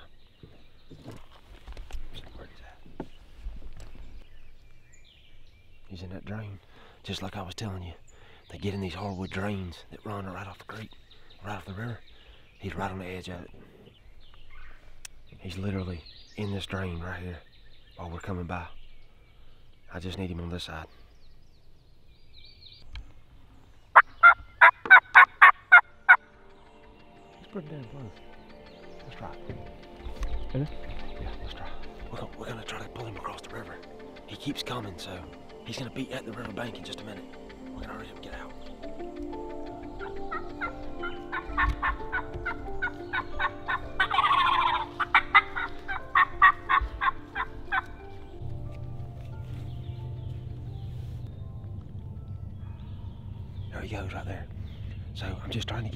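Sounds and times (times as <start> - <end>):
turkey call yelps: 24.0 - 26.2, 40.0 - 48.0.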